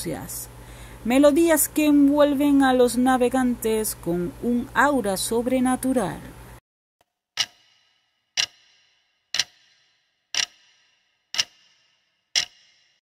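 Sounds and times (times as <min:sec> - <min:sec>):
clock ticking: 0:07.4 - 0:07.8, 0:08.4 - 0:08.7, 0:09.3 - 0:12.8.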